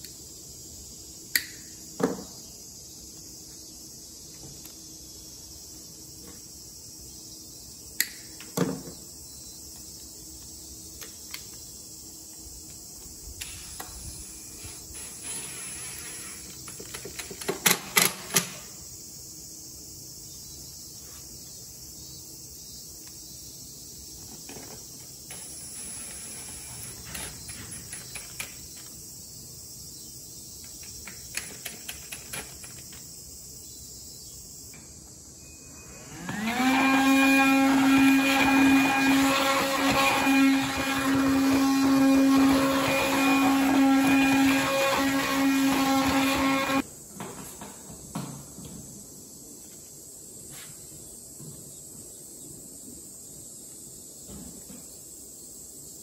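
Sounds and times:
power tool motor spinning: 35.9s - 46.8s.

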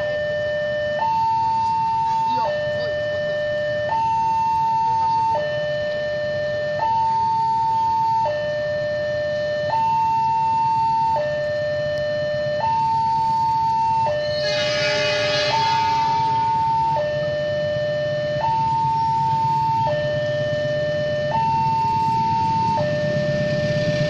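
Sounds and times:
level crossing two-tone alarm: 0.0s - 24.0s
hiss: 14.2s - 16.6s.

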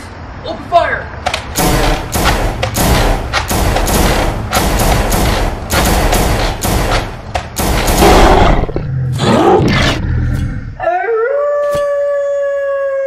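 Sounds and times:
sharp clicks: 1.2s - 8.1s
werewolf howl: 8.4s - 13.0s.

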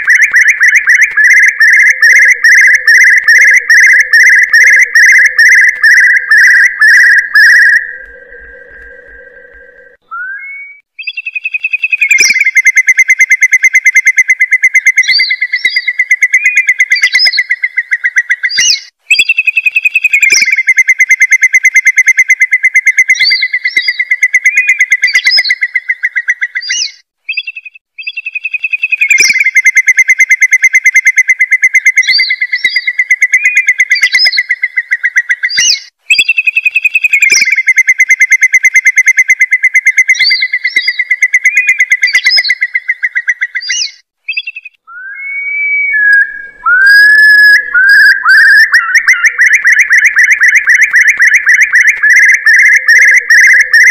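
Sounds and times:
curlew piping notes: 0.0s - 10.8s, 44.8s - 53.9s
curlew bubbling trills: 0.0s - 11.2s, 40.0s - 53.9s
short rising whistled notes: 44.9s - 53.6s.

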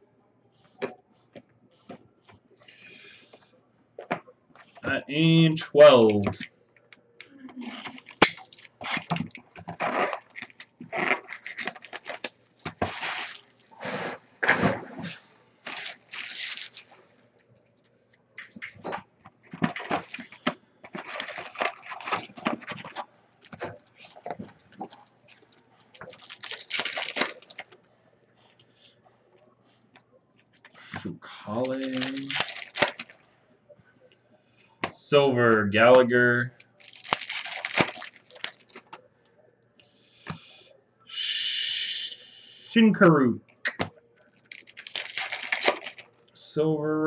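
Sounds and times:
foil wrapper tearing: 7.6s - 14.0s, 15.6s - 17.0s, 19.7s - 23.5s, 25.4s - 27.8s, 31.6s - 33.2s, 36.5s - 38.9s, 44.4s - 46.2s
plastic and cardboard rustling: 7.6s - 17.1s, 18.4s - 27.8s, 30.5s - 33.3s, 36.5s - 39.0s, 44.3s - 46.2s.

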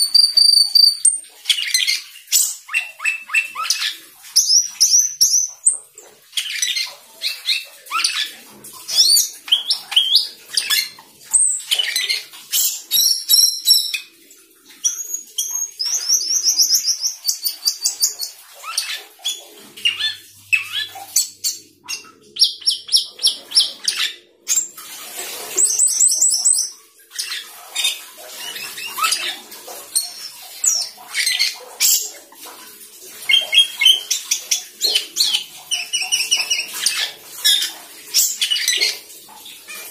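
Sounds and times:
starling singing: 0.0s - 5.8s, 8.9s - 14.1s, 14.8s - 24.7s, 33.3s - 38.9s.

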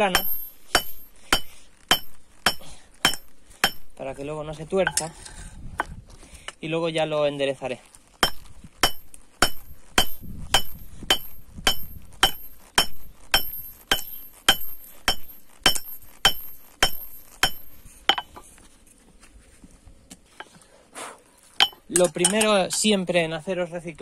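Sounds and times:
hammer ringing on hot steel: 0.0s - 4.0s, 8.2s - 18.3s, 21.6s - 22.4s.

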